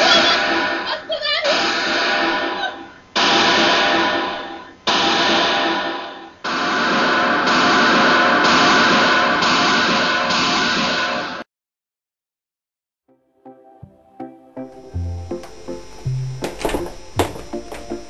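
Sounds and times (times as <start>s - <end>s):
soundtrack music chords: 13.1s - 18.0s.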